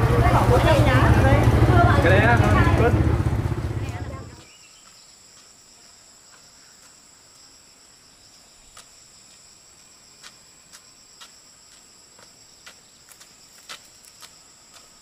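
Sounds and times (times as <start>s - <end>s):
busy market street noise: 0.0s - 4.4s
footsteps on dirt track: 3.8s - 7.6s, 8.5s - 15.0s.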